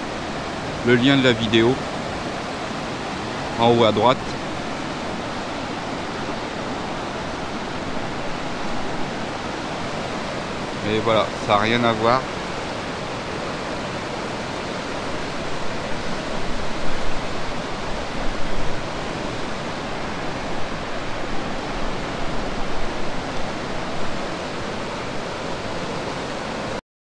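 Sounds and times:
river rushing: 0:00.0 - 0:26.8.

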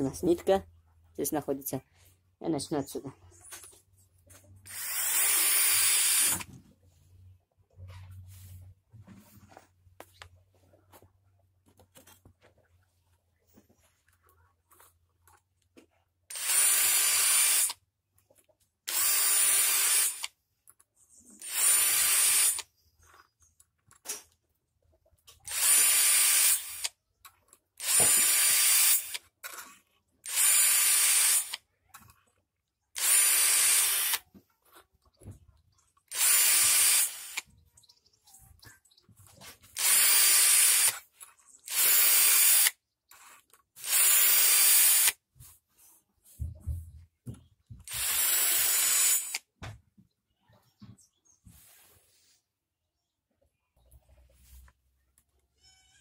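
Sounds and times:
cordless drill sharpening chain: 0:04.6 - 0:06.5, 0:16.3 - 0:17.8, 0:18.9 - 0:20.3, 0:21.4 - 0:22.7, 0:25.5 - 0:27.0, 0:27.8 - 0:31.6, 0:33.0 - 0:34.2, 0:36.1 - 0:37.5, 0:39.8 - 0:45.2, 0:47.9 - 0:49.4.

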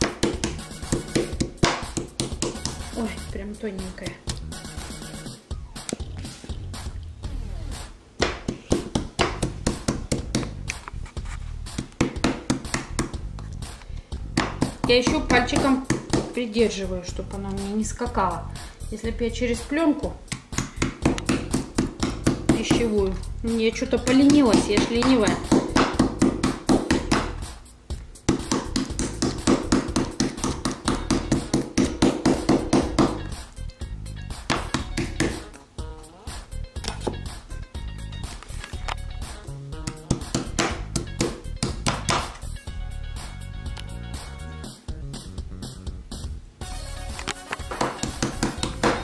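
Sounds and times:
meat mallet pounding meat: 0:00.0 - 0:03.0, 0:08.2 - 0:10.7, 0:11.7 - 0:13.4, 0:14.2 - 0:16.4, 0:20.3 - 0:23.2, 0:24.0 - 0:27.4, 0:28.2 - 0:33.4, 0:34.4 - 0:35.5, 0:39.8 - 0:42.4, 0:47.7 - 0:49.0.

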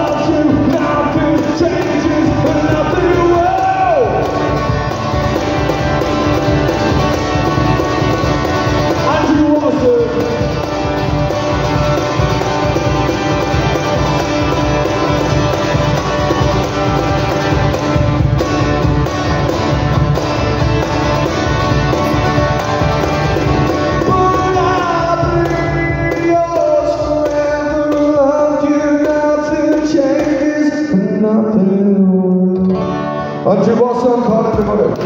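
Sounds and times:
man singing: 0:00.0 - 0:04.6, 0:08.9 - 0:10.6, 0:23.9 - 0:35.0
cajon struck by hand: 0:00.0 - 0:30.8
acoustic guitar strumming: 0:00.0 - 0:35.0.

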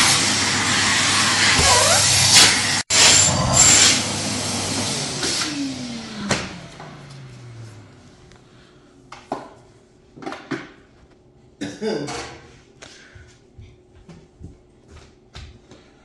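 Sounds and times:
vacuum cleaner winding down: 0:00.0 - 0:08.5.

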